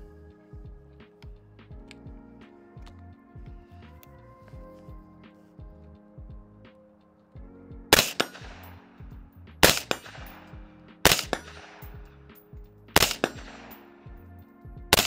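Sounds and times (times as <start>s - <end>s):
suppressed rifle shots: 8.0s - 8.8s, 9.6s - 12.1s, 13.0s - 13.8s.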